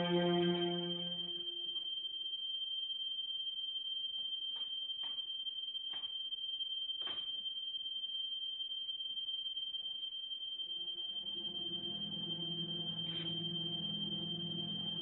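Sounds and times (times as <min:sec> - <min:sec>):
high-pitched pure tone: 0:00.0 - 0:01.7, 0:10.8 - 0:15.0.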